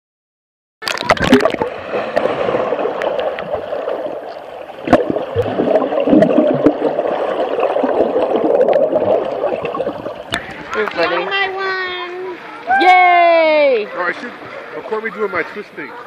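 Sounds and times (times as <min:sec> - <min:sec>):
underwater water churning and bubbling: 0:00.8 - 0:11.6.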